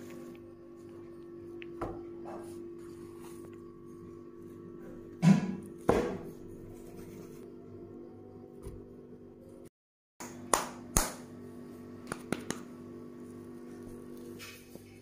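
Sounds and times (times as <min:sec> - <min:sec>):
hands patting and slapping mixture: 0:12.0 - 0:12.8.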